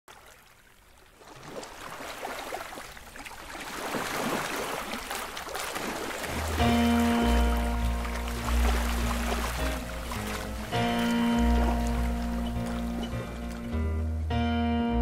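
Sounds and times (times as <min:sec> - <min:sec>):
water: 0:00.1 - 0:14.5
wind: 0:00.1 - 0:15.0
music with deep bass: 0:06.6 - 0:15.0.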